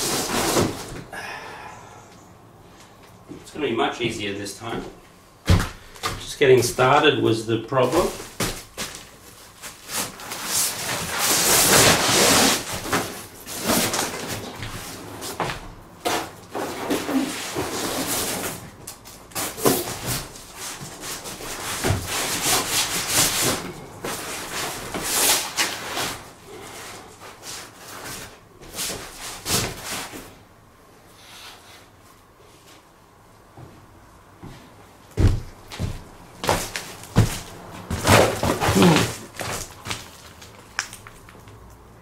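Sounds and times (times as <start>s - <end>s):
plastic sheet rustling: 7.8s - 15.4s, 35.2s - 41.6s.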